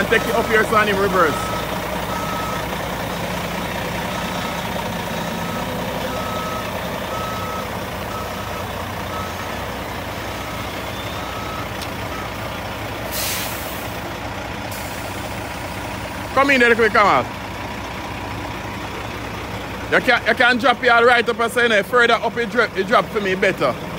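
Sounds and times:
truck backup alarm beeping: 0.0s - 18.2s
diesel engine running: 0.0s - 23.9s
air brake hiss: 13.1s - 14.0s, 14.7s - 15.2s.

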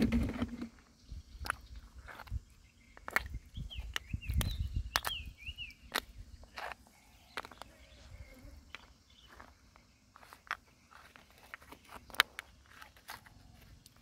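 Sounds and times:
bird chirping: 0.1s - 14.0s.

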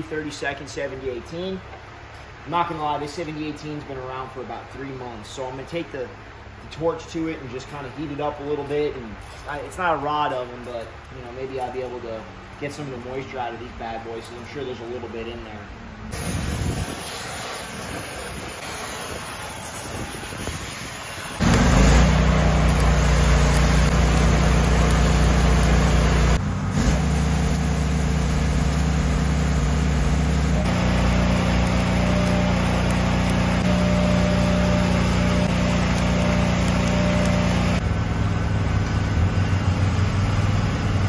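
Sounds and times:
welding arc crackling: 16.1s - 37.9s
welder engine drone: 16.1s - 41.0s.

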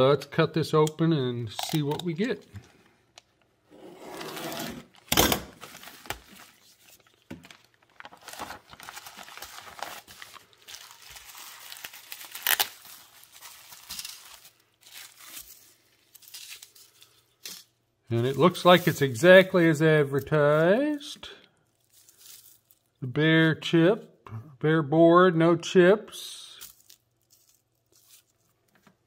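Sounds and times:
plastic bag tearing: 4.3s - 17.0s, 18.2s - 19.7s
bubble wrap rustling: 4.8s - 23.0s, 26.6s - 28.7s
sharp plastic crackles: 5.0s - 15.6s.

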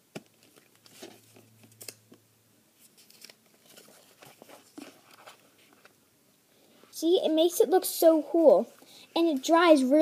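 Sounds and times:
paper rustling and crinkling: 0.2s - 2.0s, 2.8s - 6.0s.

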